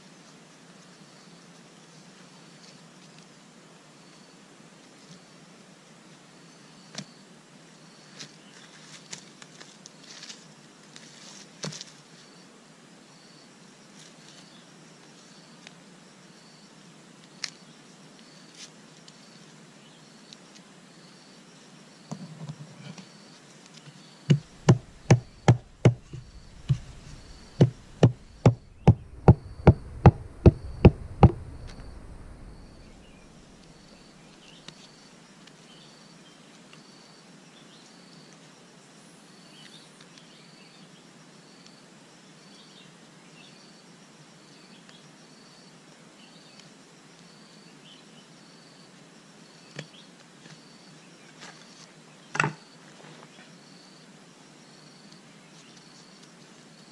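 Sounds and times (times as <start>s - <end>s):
faint insect chirping: 0.0s - 56.9s
stone knocking on sandal: 24.3s - 31.5s.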